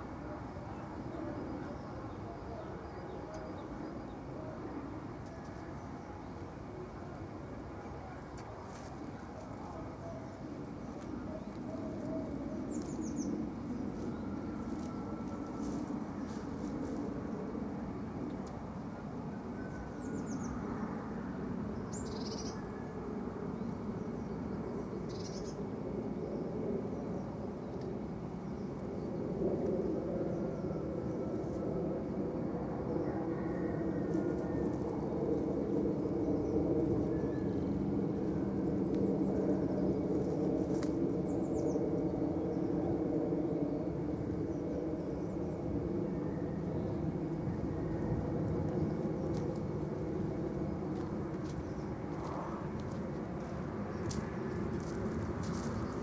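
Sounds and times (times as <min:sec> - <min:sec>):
steady low rumble: 0:03.4 - 0:22.3, 0:25.9 - 0:56.0.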